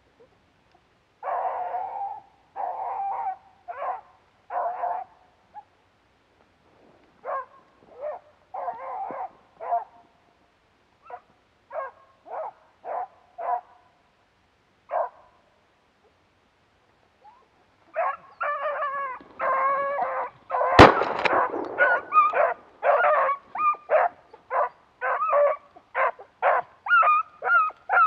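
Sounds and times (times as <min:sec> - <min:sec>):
hounds baying and barking: 0:01.2 - 0:05.2, 0:07.2 - 0:10.0, 0:11.0 - 0:13.8, 0:14.9 - 0:15.3, 0:17.2 - 0:28.0.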